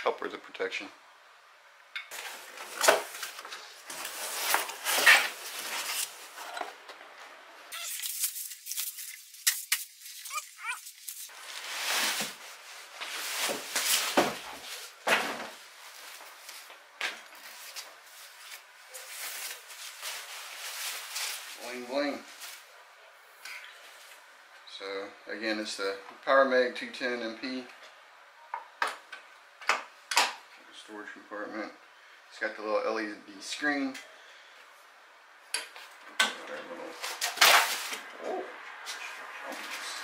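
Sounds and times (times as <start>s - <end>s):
plastic and cardboard rustling: 2.1s - 6.9s, 7.8s - 22.7s
brief squeaks: 7.7s - 8.2s.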